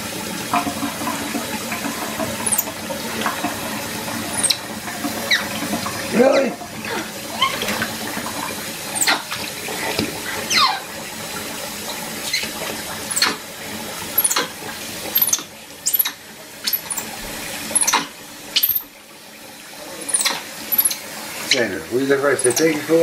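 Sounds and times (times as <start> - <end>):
tap running into sink: 0.0 - 19.0, 20.0 - 23.0
short high squeaks: 4.3 - 4.6, 9.0 - 9.2, 13.1 - 13.4, 14.2 - 14.5, 15.2 - 17.1, 17.8 - 18.8, 20.0 - 21.7.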